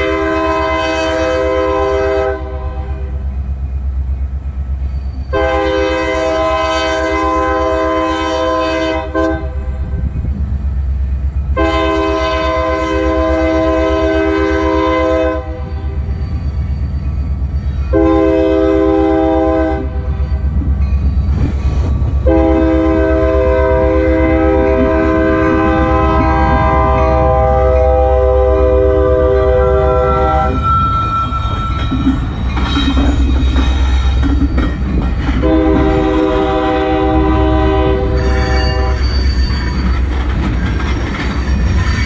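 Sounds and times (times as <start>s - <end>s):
locomotive air horn: 0.0s - 3.2s, 5.3s - 9.7s, 11.6s - 16.1s, 17.9s - 20.2s, 22.2s - 31.7s, 35.4s - 39.6s
train engine and wheels rumbling: 0.0s - 42.0s.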